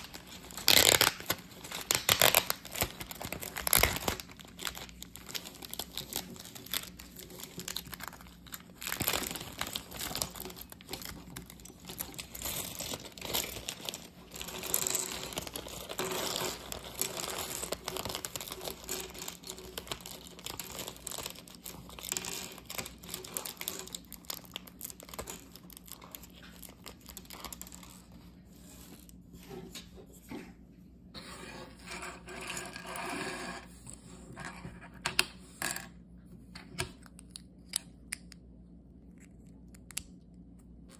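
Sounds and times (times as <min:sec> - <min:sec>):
plastic bag crinkling: 0:00.0 - 0:29.2.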